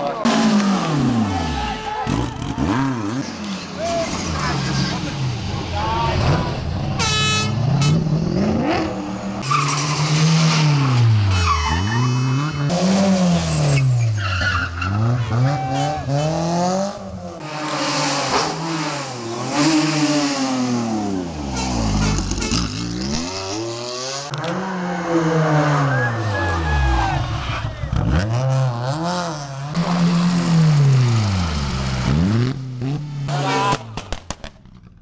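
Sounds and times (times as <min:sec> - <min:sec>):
rally car engines revving: 0:00.0 - 0:35.0
tyres skidding on tarmac: 0:08.8 - 0:16.6.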